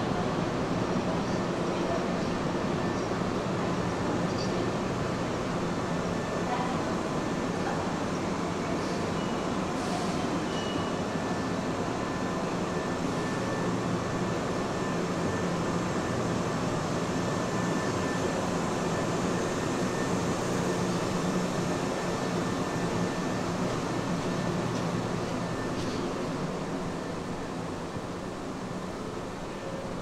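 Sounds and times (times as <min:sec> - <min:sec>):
train air conditioning hum and hiss: 0:00.0 - 0:30.0.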